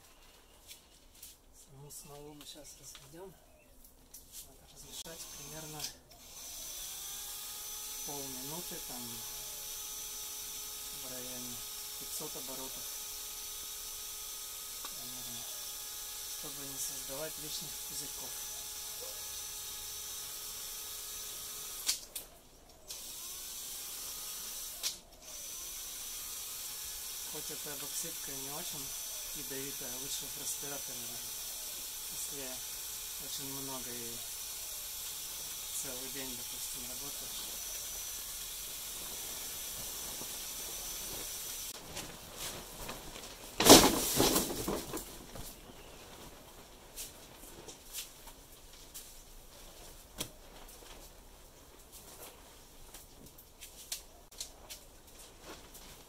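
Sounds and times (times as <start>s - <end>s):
electric drill mixing: 5.0s - 22.1s, 22.9s - 41.8s
sack rustling and crinkling: 39.0s - 53.3s
loud crumpling thump: 41.8s - 46.5s.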